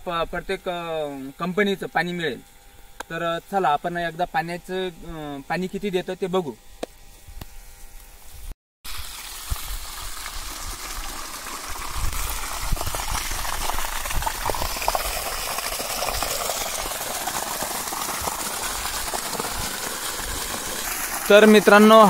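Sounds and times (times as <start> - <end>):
water gushing onto wet ground: 8.9 - 22.0.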